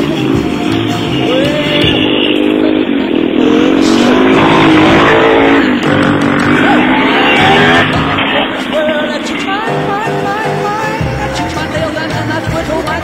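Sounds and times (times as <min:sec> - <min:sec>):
atv engine revving: 0:00.0 - 0:11.6.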